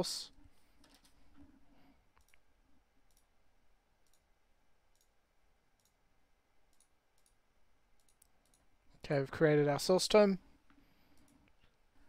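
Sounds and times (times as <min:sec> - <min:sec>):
computer mouse clicks: 0:00.8 - 0:01.2, 0:02.1 - 0:02.4, 0:03.0 - 0:03.3, 0:04.0 - 0:04.3, 0:04.9 - 0:05.2, 0:05.8 - 0:06.0, 0:06.7 - 0:07.4, 0:08.0 - 0:08.7, 0:11.1 - 0:11.8.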